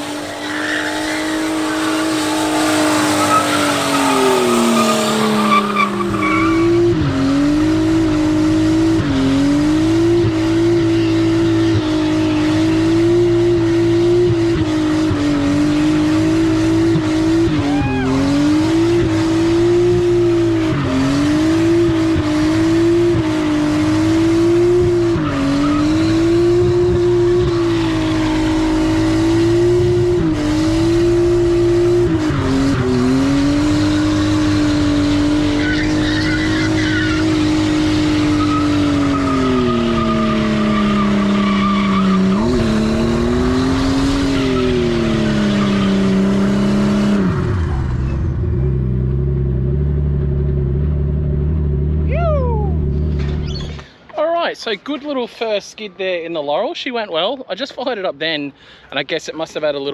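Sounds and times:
tyres spinning and squealing: 0.0 - 8.2, 24.8 - 29.6, 32.1 - 48.8, 52.1 - 54.2
car engine revving high: 0.0 - 53.8.

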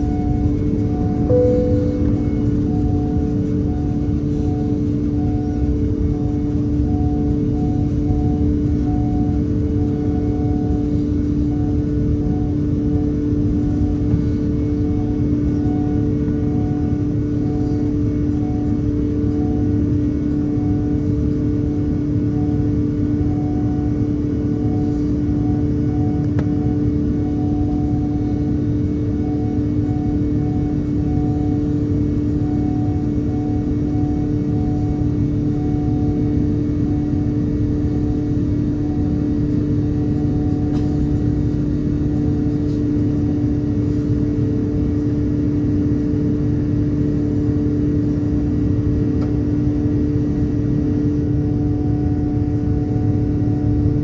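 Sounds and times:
faint tone: 0.0 - 12.6
airplane cabin engine drone: 0.0 - 54.0
steady hums: 0.0 - 54.0.

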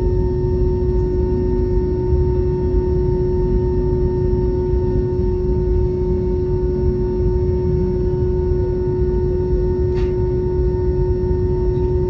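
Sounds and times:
airliner cabin rumble: 0.0 - 12.0
constant hum tone: 0.0 - 12.0.

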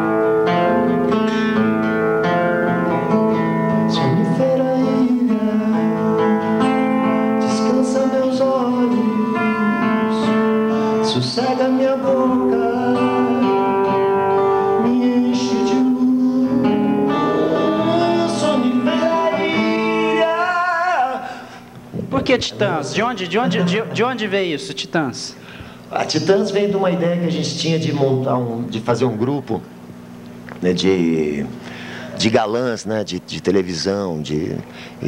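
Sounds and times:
harmonica chords: 0.0 - 27.0
acoustic guitar strumming: 0.0 - 30.1.

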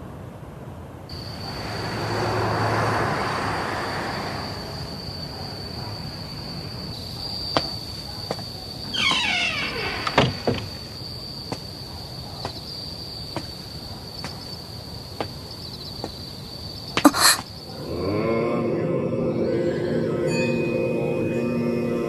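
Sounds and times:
rushing noise: 1.1 - 6.9
insects chirring: 1.1 - 22.0
falling squeal: 8.8 - 11.0.

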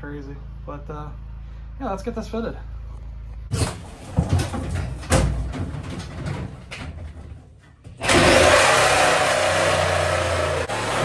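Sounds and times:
knocks and rattles of handling: 3.5 - 8.0
power tool running: 8.0 - 11.0.

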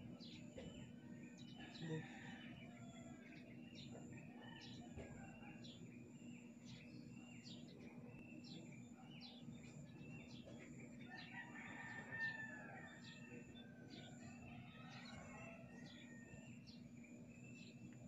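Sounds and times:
faint rooster crowing: 0.2 - 5.8, 10.0 - 18.0.

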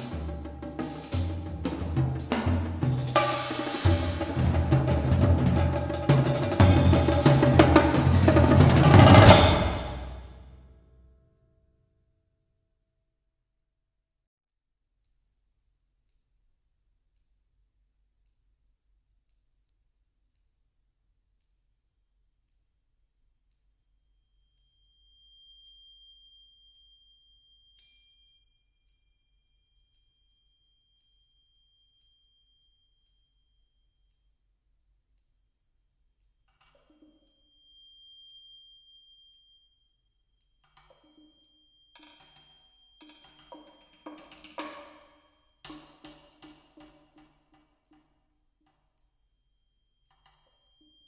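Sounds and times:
metal percussion strikes ringing: 0.0 - 10.6, 40.6 - 49.2
steady high ringing tone: 15.1 - 51.0.

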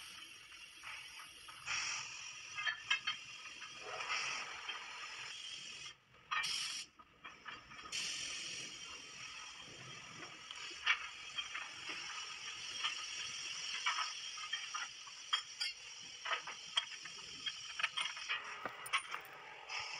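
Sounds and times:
metallic clicks and clanks: 10.6 - 19.5.

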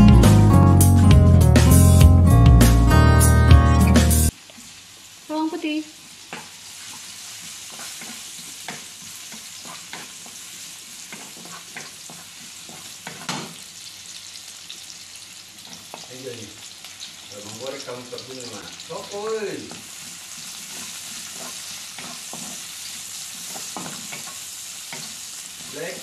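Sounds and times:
acoustic guitar music: 0.0 - 4.3
garlic sizzling in oil: 4.3 - 26.0
wooden spatula scraping pan: 7.7 - 10.4, 11.0 - 13.4, 19.9 - 22.6.

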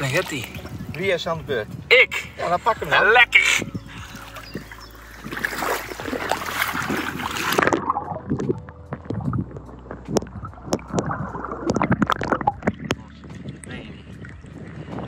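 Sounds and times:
water splashing and sloshing: 0.0 - 15.0
muffled underwater knocks and clicks: 3.8 - 15.0.

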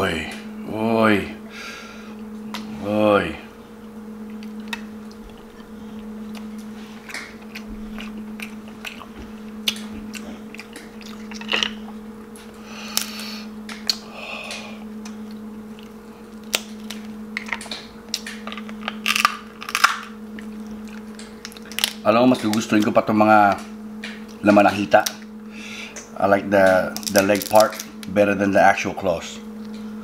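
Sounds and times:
low hum: 0.0 - 30.0
wet chewing: 4.2 - 22.9
crab shell cracking: 4.3 - 22.9, 26.9 - 28.1.

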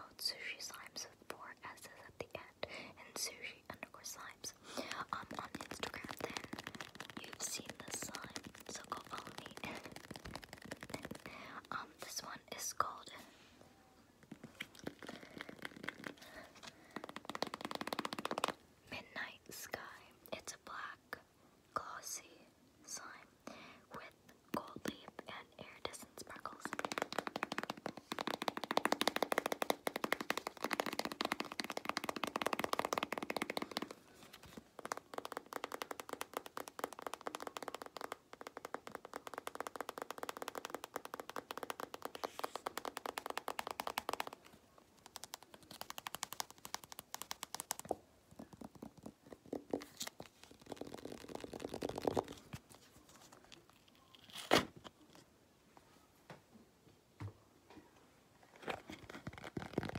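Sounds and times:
fingers tapping slime: 5.1 - 11.3, 16.9 - 18.6, 26.5 - 52.4.

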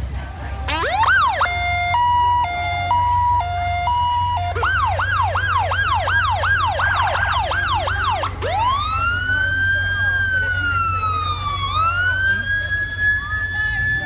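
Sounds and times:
low engine rumble: 0.0 - 14.0
electronic siren: 0.7 - 14.0.

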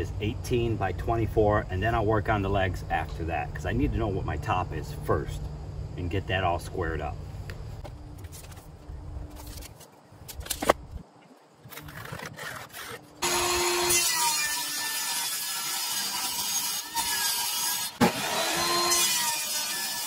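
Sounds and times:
table saw cutting wood: 12.2 - 20.0.

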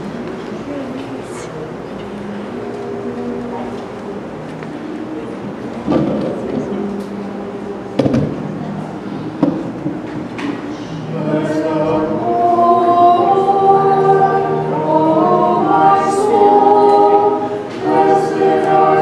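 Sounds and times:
choir singing a cappella: 2.0 - 9.1, 10.6 - 19.0.

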